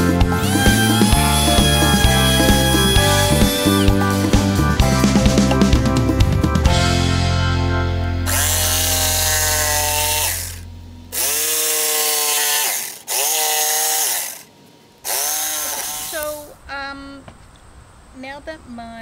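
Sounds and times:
jigsaw cutting wood: 0.0s - 4.0s, 8.3s - 16.4s.

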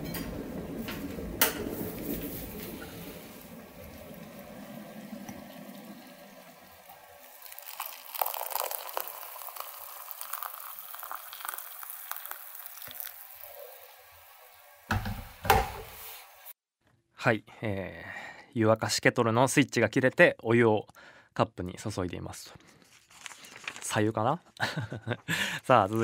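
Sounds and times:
kettle boiling rumble: 0.0s - 13.2s
water pouring into cup: 1.7s - 14.0s.

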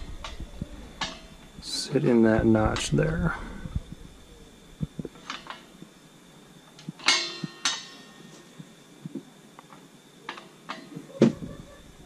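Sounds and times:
ringing metallic knocks: 7.0s - 8.4s.

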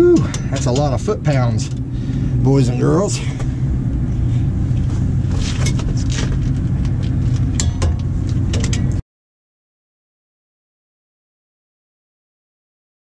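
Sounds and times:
low outdoor rumble: 0.0s - 9.0s.

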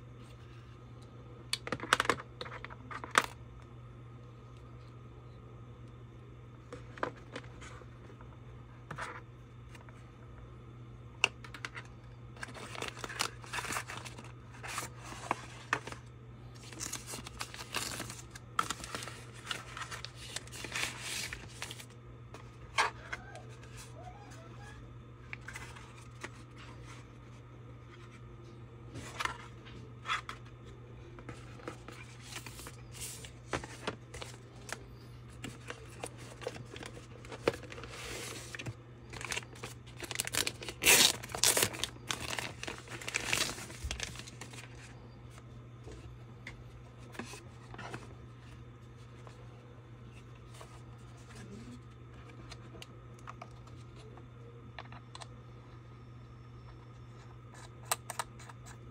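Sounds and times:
low hum: 2.6s - 58.9s
packaging rustling and crinkling: 11.5s - 23.9s, 29.0s - 46.1s.

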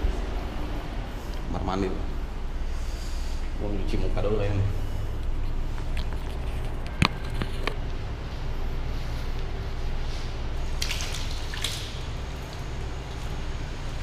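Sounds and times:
steady low hum: 0.0s - 14.0s
splashing while washing face: 10.6s - 14.0s.

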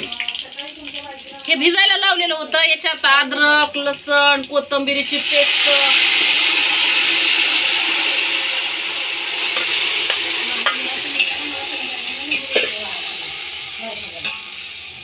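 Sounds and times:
chicken sizzling in hot oil: 0.0s - 15.0s
steel ladle scraping a pot: 6.0s - 14.8s.

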